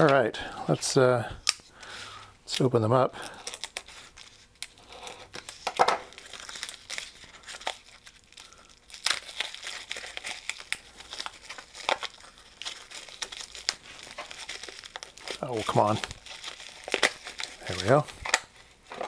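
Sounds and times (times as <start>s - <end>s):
plastic wrapping crinkling: 1.8s - 19.0s
plastic tearing snaps: 8.9s - 19.0s.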